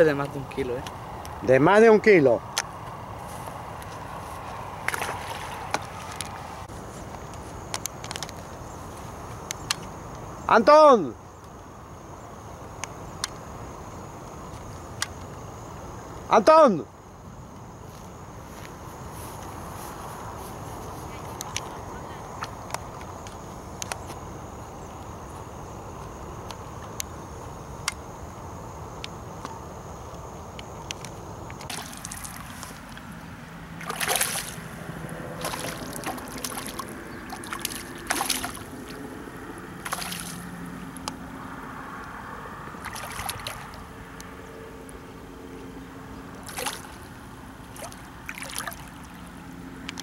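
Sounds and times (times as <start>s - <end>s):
fish thrashing and splashing: 4.8s - 6.6s, 31.7s - 33.1s, 33.8s - 39.1s, 39.8s - 40.5s, 42.8s - 43.8s, 46.4s - 47.1s, 47.7s - 49.2s.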